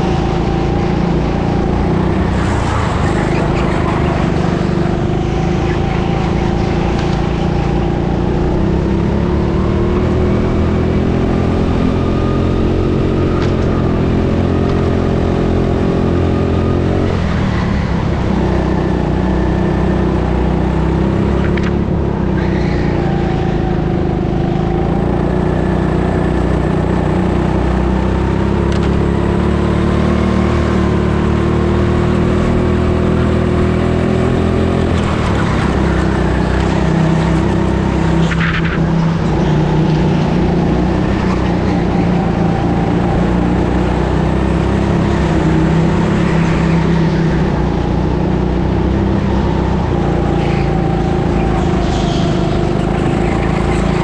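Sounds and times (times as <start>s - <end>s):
go-kart engine at speed: 0.0s - 54.0s.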